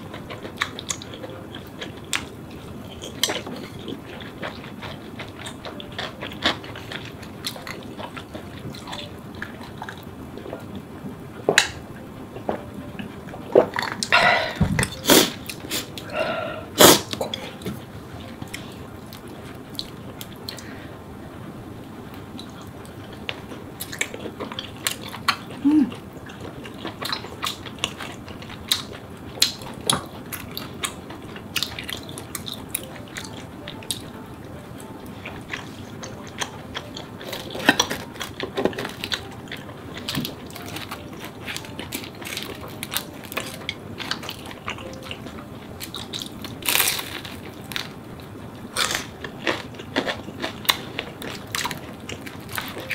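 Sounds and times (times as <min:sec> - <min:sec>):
chewing: 0:00.0 - 0:10.8, 0:22.1 - 0:34.2, 0:34.8 - 0:48.0, 0:48.6 - 0:52.9.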